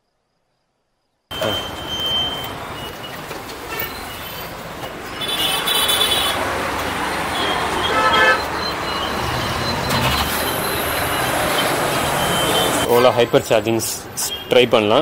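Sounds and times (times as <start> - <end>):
high-pitched beep: 1.3 - 2.9
street traffic: 1.3 - 15.0
vehicle horn toot: 5.2 - 6.4, 7.4 - 8.6.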